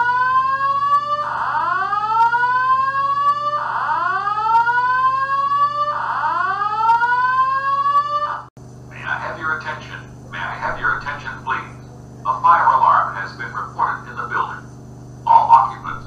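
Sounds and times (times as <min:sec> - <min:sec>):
rising whooping alarm tone: 0:00.0 - 0:08.5, 0:15.3 - 0:16.0
steady low hum: 0:00.0 - 0:16.0.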